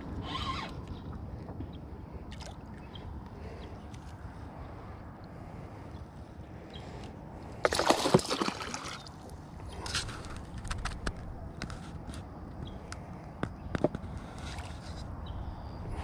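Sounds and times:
fish splashing at surface: 0:07.6 - 0:09.1.

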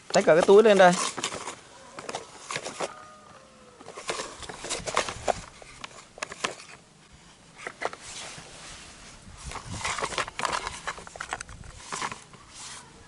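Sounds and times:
plastic toy truck clicks and knocks: 0:09.8 - 0:12.2.

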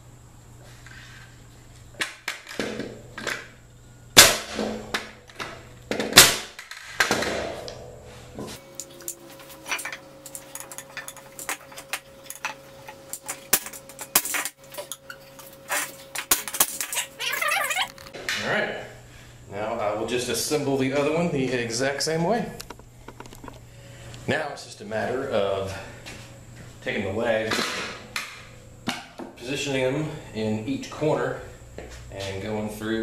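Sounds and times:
nail gun shots: 0:04.2 - 0:04.7, 0:06.0 - 0:07.4.

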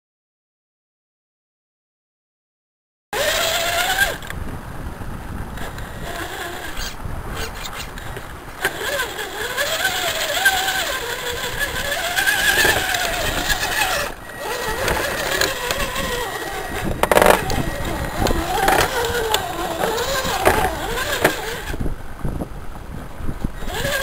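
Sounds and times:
electric motor and gearbox whining: 0:03.2 - 0:04.4, 0:05.5 - 0:21.9, 0:23.4 - 0:24.0
tyres crunching through mud: 0:07.6 - 0:21.8.

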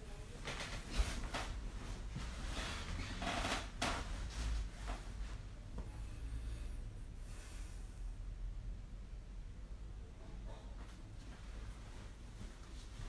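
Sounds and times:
rustling near microphone: 0:00.0 - 0:06.0, 0:10.7 - 0:13.0
low steady hum: 0:00.0 - 0:13.0.

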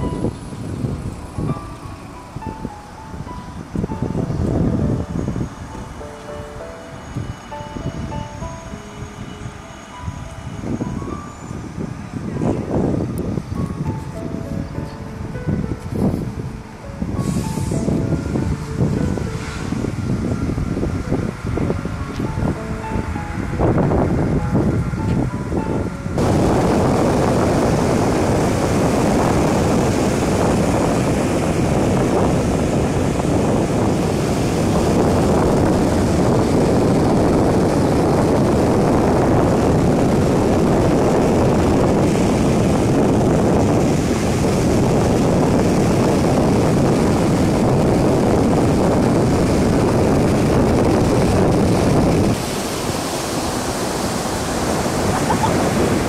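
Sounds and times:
wind rumble on microphone: 0:00.0 - 0:56.0
surf washing onto sandy beach: 0:26.2 - 0:56.0.

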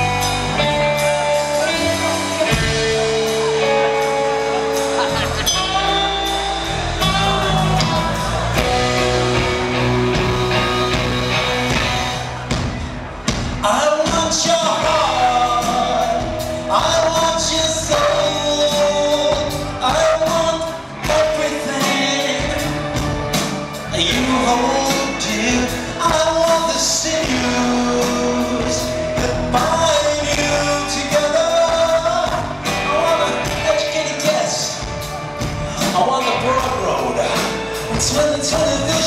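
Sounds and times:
live rock band playing: 0:00.0 - 0:39.0
man singing into microphone: 0:13.6 - 0:23.2, 0:23.8 - 0:35.0, 0:35.8 - 0:39.0.

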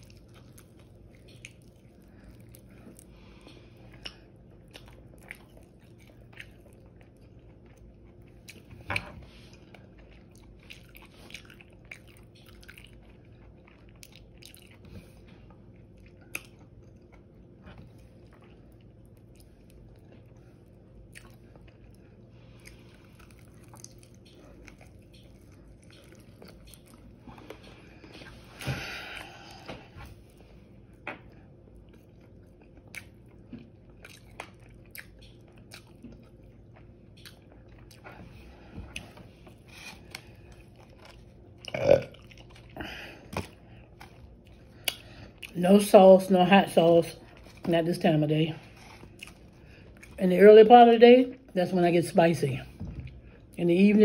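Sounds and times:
chewing crispy chicken: 0:00.0 - 0:45.6, 0:48.6 - 0:50.2.

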